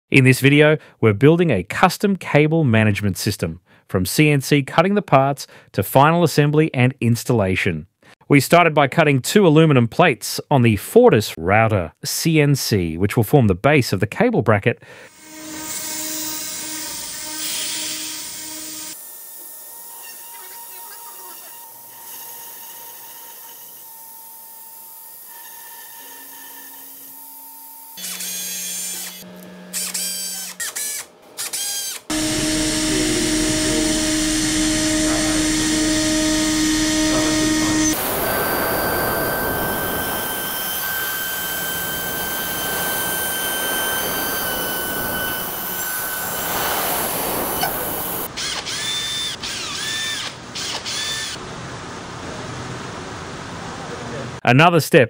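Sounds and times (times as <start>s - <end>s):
router spindle whine: 15.1s - 51.4s
metal milling noise: 32.1s - 51.3s.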